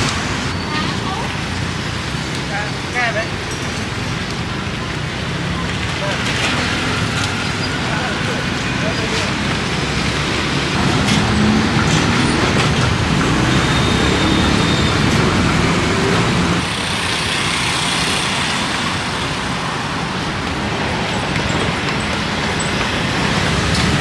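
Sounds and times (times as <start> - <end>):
street traffic: 0.0 - 24.0.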